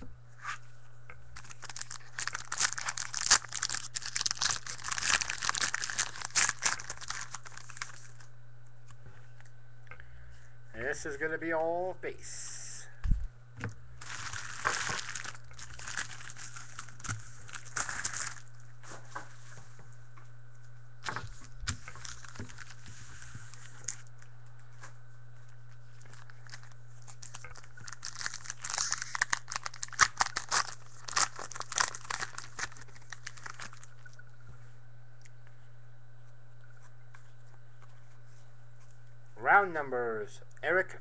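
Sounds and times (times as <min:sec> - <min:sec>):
wrapper tearing and crinkling: 0:01.4 - 0:08.3, 0:14.0 - 0:18.6, 0:21.0 - 0:24.1, 0:26.0 - 0:34.2.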